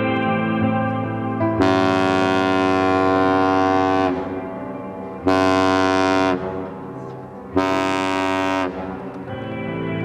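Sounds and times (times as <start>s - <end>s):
ship horn blasts: 1.5s - 6.9s, 7.5s - 9.2s.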